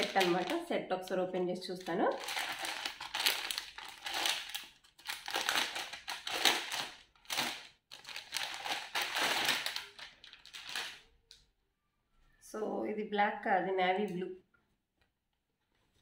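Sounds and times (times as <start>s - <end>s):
plastic bag crinkling: 0.0s - 11.2s.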